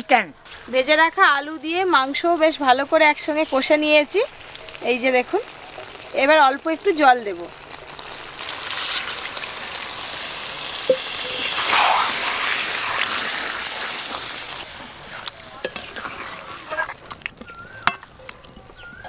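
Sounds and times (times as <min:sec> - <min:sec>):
water sizzling in hot oil: 0:00.0 - 0:19.0.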